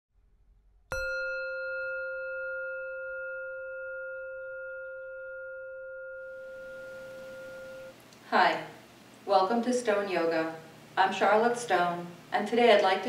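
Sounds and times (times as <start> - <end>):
bell ringing: 0.9 - 8.0.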